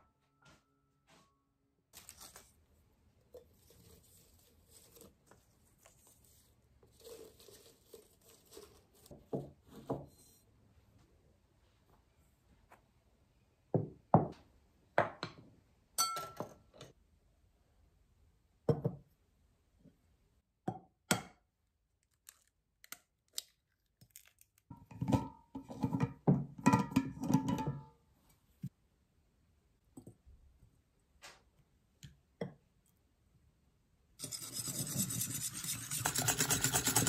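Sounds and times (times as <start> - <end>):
ceramic bowls knocking and clinking: 16.0 - 16.6, 18.7 - 19.0, 24.7 - 27.9.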